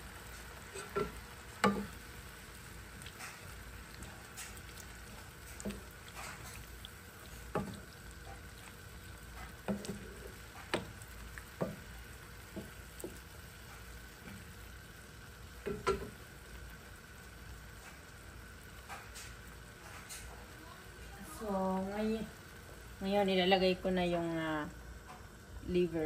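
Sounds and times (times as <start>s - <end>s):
meat sizzling in a frying pan: 0.0s - 26.0s
spatula scraping and knocking pan: 0.7s - 2.0s, 7.3s - 8.5s, 9.3s - 11.9s.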